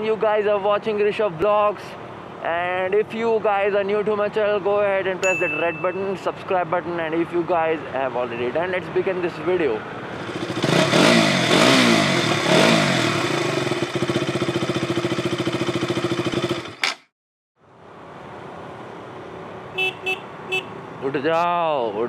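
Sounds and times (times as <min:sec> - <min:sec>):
short beeps: 0:05.2 - 0:06.2
motorcycle engine revving: 0:10.0 - 0:17.1.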